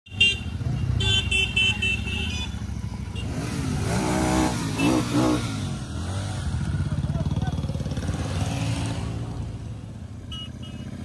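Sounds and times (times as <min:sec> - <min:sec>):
motorcycle engines rumbling: 0:00.1 - 0:11.0
short horn beeps: 0:10.2 - 0:11.0.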